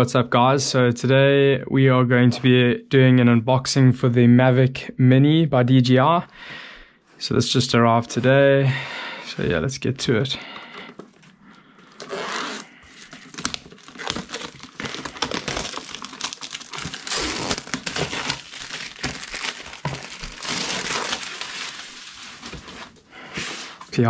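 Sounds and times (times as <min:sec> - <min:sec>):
plastic shrink wrap crinkling: 0:10.5 - 0:23.1.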